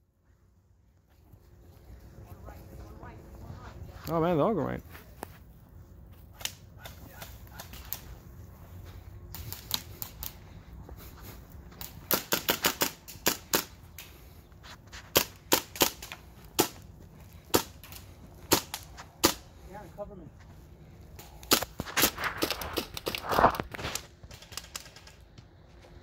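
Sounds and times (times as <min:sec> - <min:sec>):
airsoft rifle shots: 0:12.0 - 0:13.8, 0:15.1 - 0:16.8, 0:18.5 - 0:19.4.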